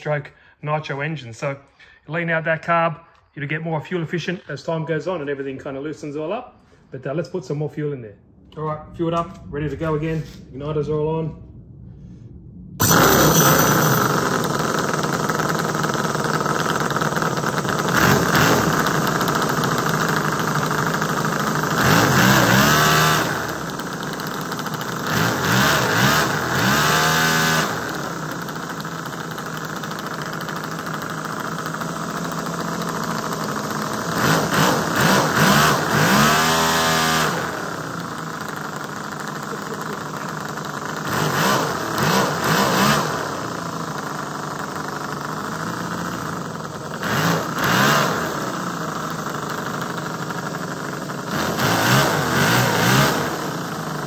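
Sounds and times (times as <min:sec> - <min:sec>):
model engine starting and revving: 0:12.8 - 0:54.0.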